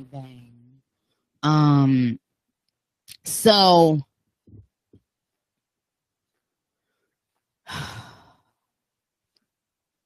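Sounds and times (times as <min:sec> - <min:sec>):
person sighing: 0:07.7 - 0:08.5.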